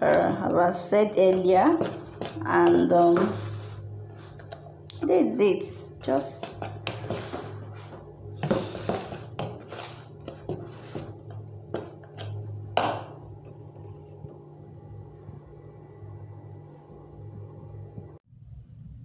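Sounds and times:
steady low hum: 0.0s - 19.0s
spoon scraping plastic bowl: 1.2s - 4.7s, 6.0s - 12.6s.

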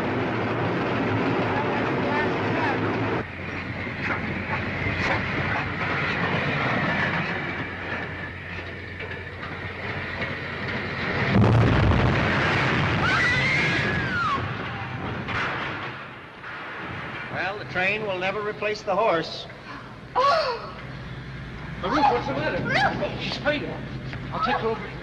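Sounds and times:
railway car wheels clattering on rails: 0.0s - 13.0s.

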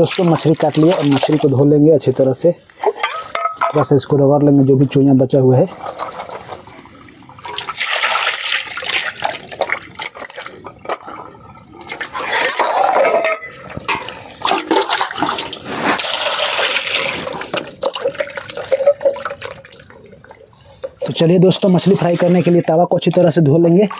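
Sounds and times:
water splashing over fish: 5.7s - 13.2s
hands rubbing wet fish: 15.1s - 19.9s.

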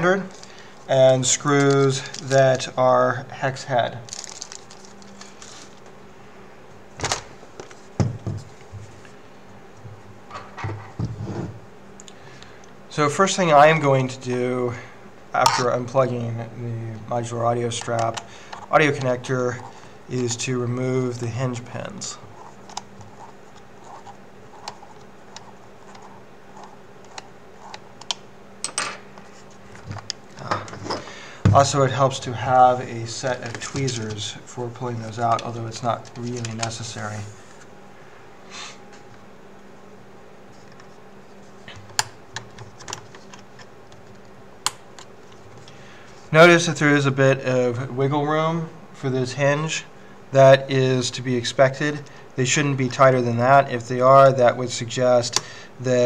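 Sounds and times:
plastic bag crinkling: 4.1s - 5.8s.

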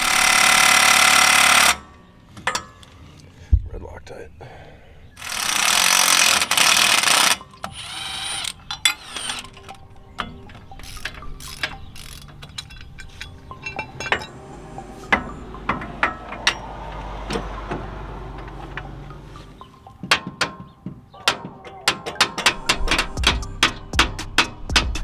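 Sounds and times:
cordless power tool running: 5.2s - 9.4s
metal tools clinking: 6.2s - 14.4s
low rumble: 12.7s - 19.9s.

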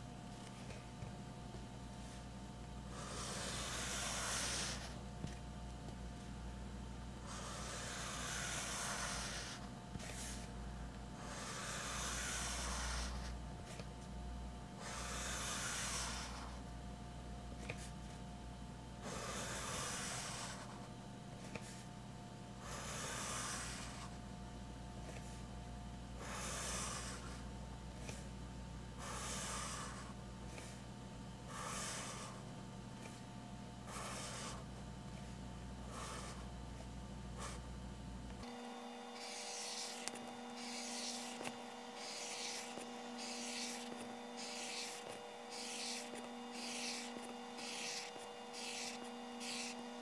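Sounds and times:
pencil scratching on paper: 2.9s - 5.0s, 7.2s - 10.5s, 11.2s - 13.8s, 14.8s - 16.6s, 19.0s - 20.8s, 22.7s - 24.2s, 26.2s - 27.4s, 29.0s - 30.8s, 31.5s - 32.4s, 33.9s - 34.7s, 35.9s - 37.6s, 39.1s - 50.0s.

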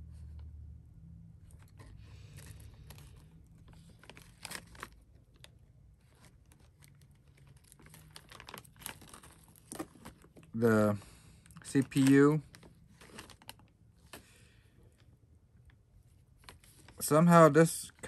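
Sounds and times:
plastic bag crinkling: 1.5s - 10.6s, 11.4s - 14.2s.

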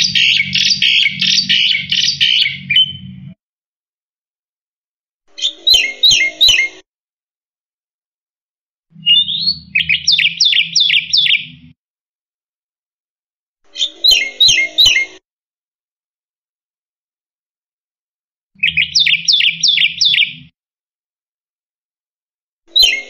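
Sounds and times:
bird singing sharp high notes: 0.0s - 3.4s, 9.0s - 11.6s.

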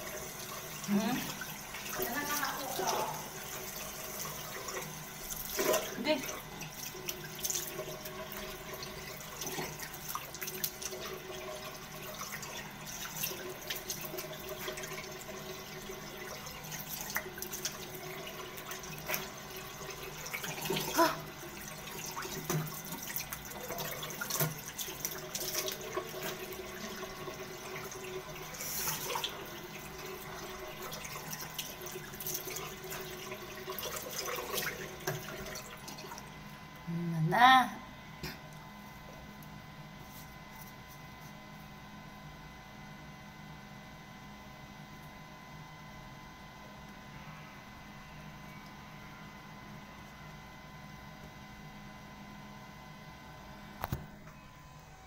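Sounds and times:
water running from tap: 0.0s - 36.5s.

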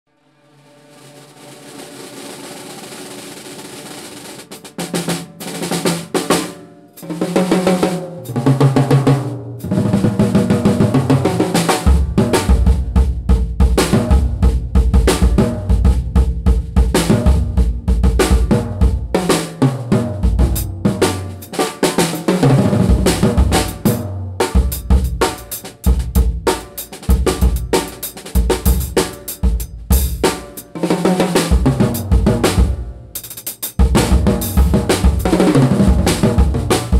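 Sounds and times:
drum kit playing: 1.1s - 36.9s
snare drum: 1.1s - 36.9s
bass drum: 8.4s - 21.5s, 22.2s - 30.6s, 31.5s - 36.9s.

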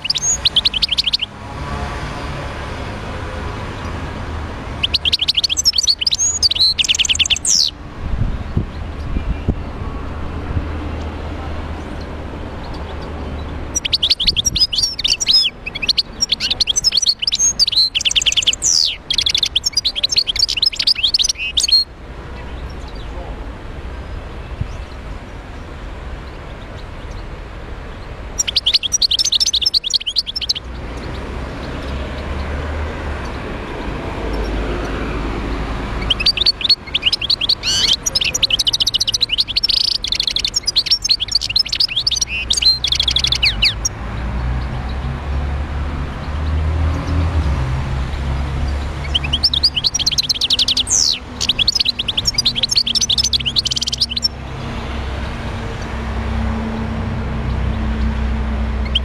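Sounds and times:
goldfinch twittering song: 0.0s - 1.8s, 4.6s - 7.8s, 11.8s - 23.2s, 23.9s - 32.6s, 33.2s - 45.1s, 48.2s - 55.0s, 56.8s - 59.0s.

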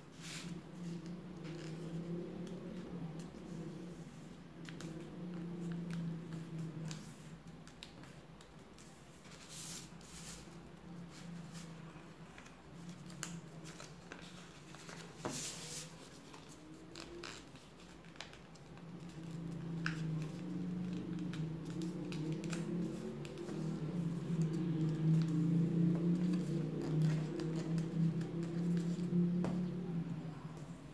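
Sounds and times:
low steady hum: 0.0s - 30.9s
paper crinkling as folded: 8.8s - 23.7s.

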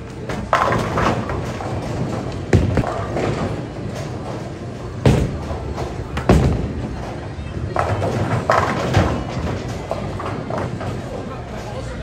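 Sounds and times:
bowling balls rolling: 0.0s - 11.6s
bowling pins crashing: 5.0s - 10.9s.

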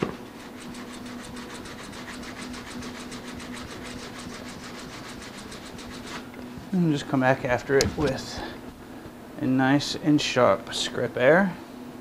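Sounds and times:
hand plane scraping wood: 0.0s - 6.3s, 7.7s - 8.6s
low steady hum: 0.0s - 12.0s.

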